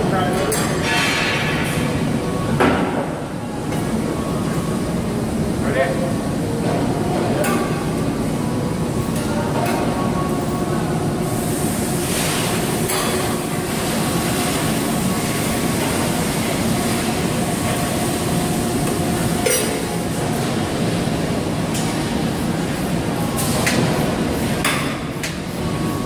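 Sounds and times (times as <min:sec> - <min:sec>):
workshop machinery noise: 0:00.0 - 0:26.0.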